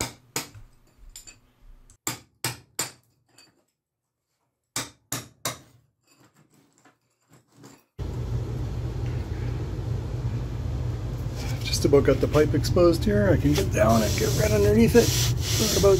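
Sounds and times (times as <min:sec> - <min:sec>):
low hum and hiss: 0:08.0 - 0:15.9.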